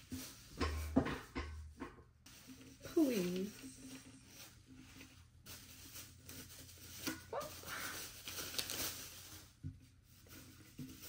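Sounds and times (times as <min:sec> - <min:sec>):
plastic wrapping crinkling and tearing: 0:02.8 - 0:11.0.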